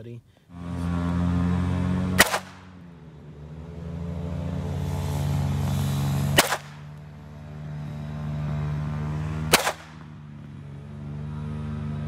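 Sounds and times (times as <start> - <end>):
pistol shot: 2.2 - 2.7, 6.4 - 6.9, 9.5 - 10.0.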